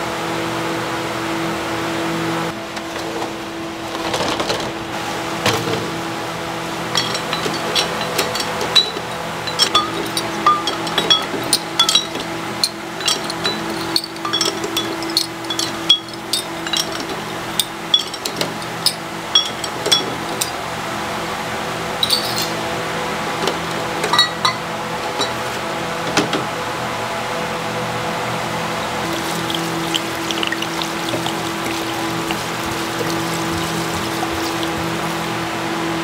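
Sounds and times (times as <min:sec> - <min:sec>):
glass bottles clinking: 0:06.8 - 0:20.6, 0:22.0 - 0:22.6, 0:24.1 - 0:24.6, 0:29.0 - 0:35.4.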